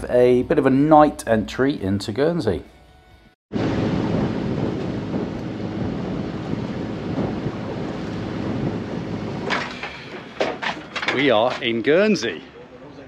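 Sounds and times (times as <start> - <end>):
wind buffeting microphone: 3.5 - 11.8
water rushing along hull: 3.6 - 11.2.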